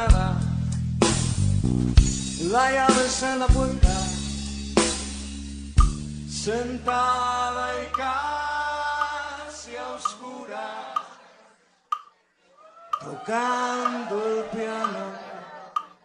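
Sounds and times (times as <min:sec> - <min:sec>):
held bass note: 0:03.9 - 0:09.2
drum hits: 0:05.8 - 0:06.1.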